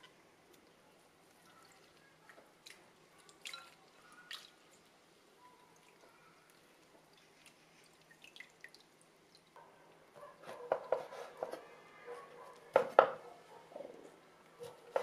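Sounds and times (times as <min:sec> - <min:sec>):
water dripping: 0:00.0 - 0:09.6
wet squishing: 0:00.0 - 0:09.6.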